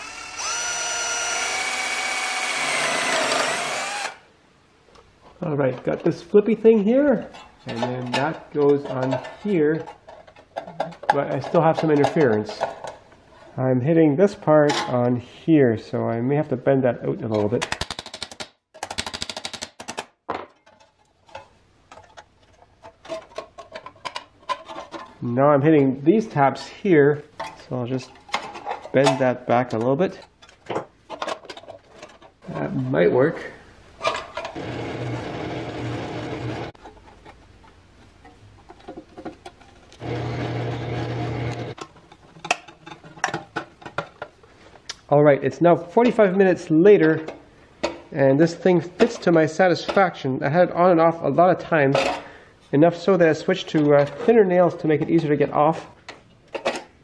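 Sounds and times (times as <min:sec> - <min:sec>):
power tool motor running: 0:00.0 - 0:04.2, 0:40.0 - 0:41.8.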